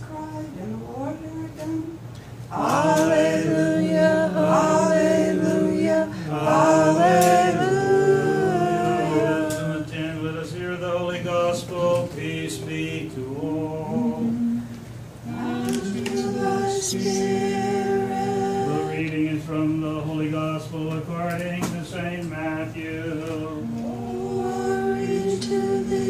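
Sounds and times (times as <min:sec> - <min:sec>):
unaccompanied liturgical chant: 0:00.0 - 0:26.0.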